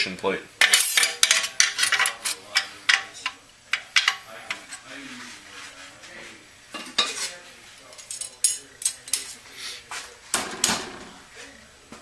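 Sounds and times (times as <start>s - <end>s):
metal plates clinking: 0.6s - 4.8s.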